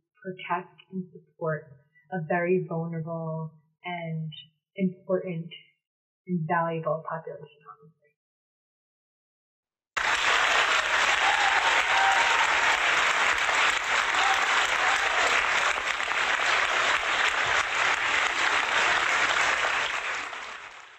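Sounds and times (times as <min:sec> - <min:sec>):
crowd applauding: 0:10.0 - 0:20.9.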